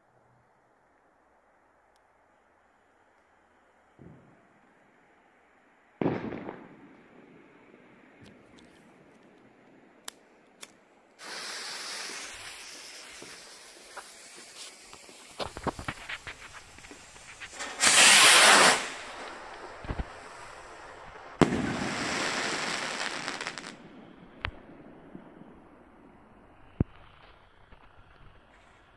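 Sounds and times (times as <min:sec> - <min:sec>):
firework bang: 0:06.0 - 0:06.9, 0:15.0 - 0:24.5
fuse hissing and crackling: 0:10.1 - 0:23.8
rocket launch whoosh: 0:15.3 - 0:20.4.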